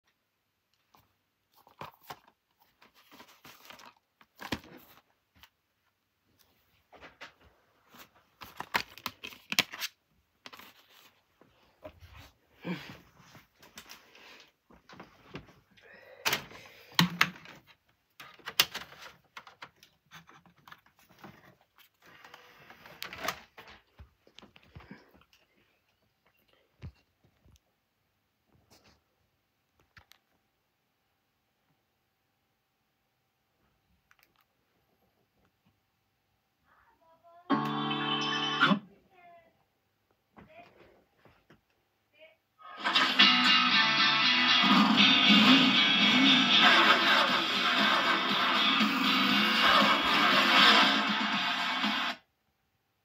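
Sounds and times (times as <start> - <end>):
disc handling rustle: 0.9 - 5.5, 7.9 - 11.4.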